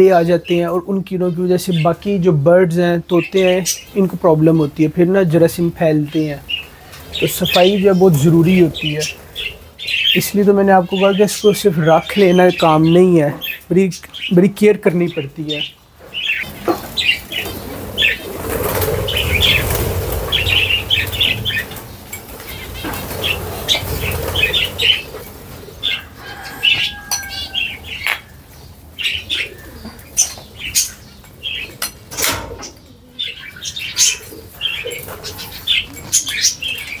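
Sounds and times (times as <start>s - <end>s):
parrots chirping: 6.0s - 37.0s
parrots flapping wings: 16.5s - 25.6s.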